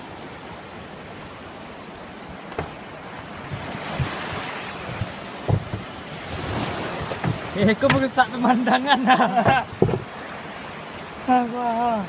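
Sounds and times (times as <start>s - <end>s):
wind buffeting microphone: 0.0s - 11.2s
surf breaking on beach: 0.0s - 12.0s
short low thumps: 3.4s - 8.2s.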